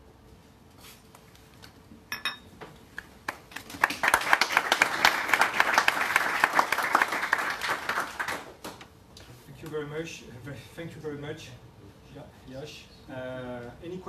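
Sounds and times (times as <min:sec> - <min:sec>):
audience applauding: 0:03.3 - 0:08.6.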